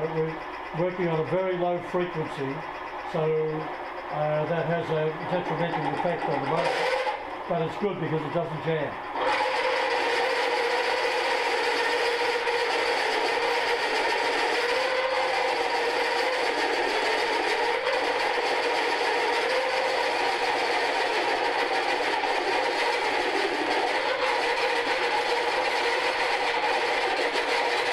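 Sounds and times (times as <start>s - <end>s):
drill grinding into steel: 9.2s - 27.9s.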